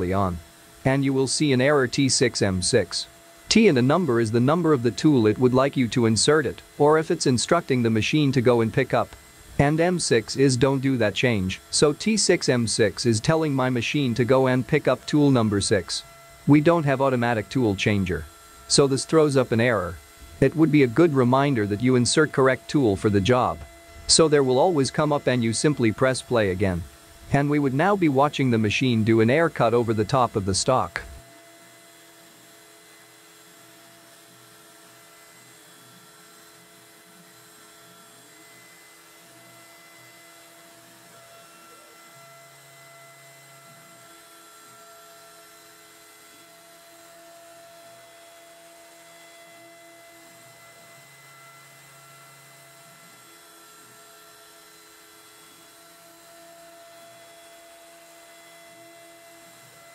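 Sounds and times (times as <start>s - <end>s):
low machine tone: 0.0s - 31.7s
cnc router humming: 0.0s - 59.9s.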